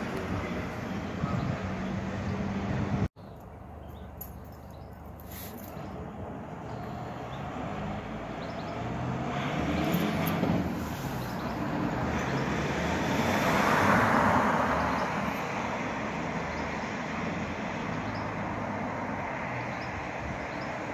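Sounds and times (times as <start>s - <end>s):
low traffic hum: 0.0s - 20.9s
car driving past: 6.9s - 15.3s.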